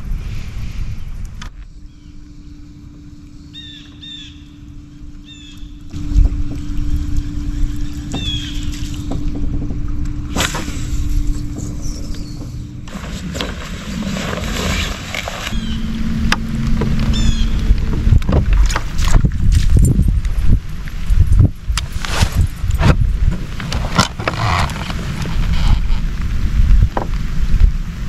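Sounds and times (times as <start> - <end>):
wind and water noise: 0.0 - 28.0
electric trolling motor humming: 1.7 - 21.9
bird chirps: 3.3 - 5.8, 6.4 - 9.2, 11.3 - 12.8, 15.5 - 18.0.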